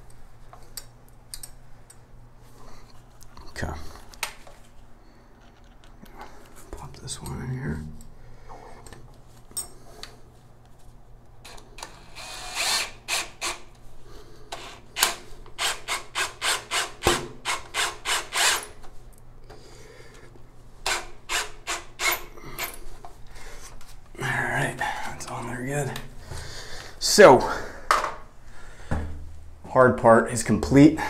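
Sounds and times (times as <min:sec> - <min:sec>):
cordless drill driving screw: 0:11.5 - 0:13.6, 0:14.6 - 0:18.7, 0:20.9 - 0:22.3.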